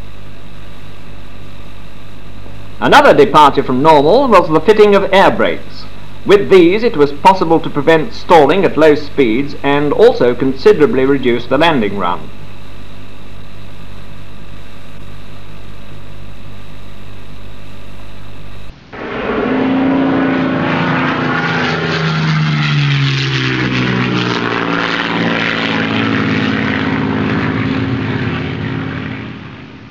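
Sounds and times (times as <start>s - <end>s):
steady tonal drone: 18.5s - 29.9s
propeller aircraft passing: 18.7s - 29.9s.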